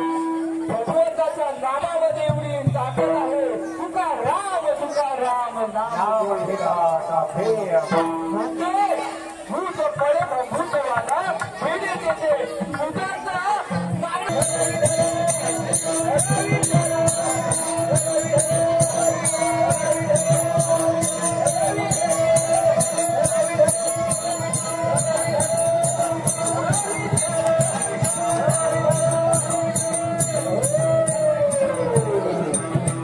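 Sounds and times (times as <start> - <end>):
metallic jingling beat: 13.7 - 33.0.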